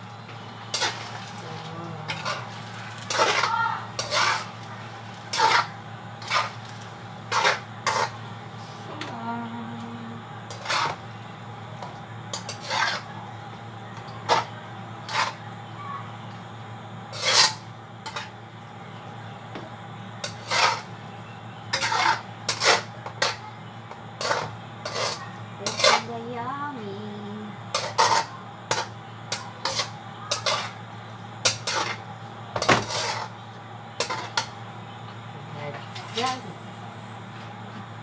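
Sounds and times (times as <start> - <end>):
metal spatula scraping a pan: 0.7 - 1.4, 2.1 - 4.6, 5.3 - 6.6, 7.3 - 8.2, 10.5 - 11.0, 12.3 - 13.1, 14.2 - 15.4, 17.1 - 18.3, 20.2 - 20.9, 21.7 - 23.4, 24.2 - 26.1, 27.7 - 30.8, 31.4 - 32.0, 32.6 - 33.4, 34.0 - 34.5.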